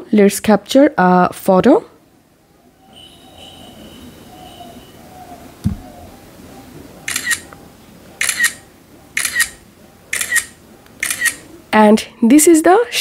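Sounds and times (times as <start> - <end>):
low thump: 5.6 - 5.9
camera shutter double click: 7.1 - 7.4, 8.2 - 8.6, 9.2 - 9.6, 10.2 - 11.4.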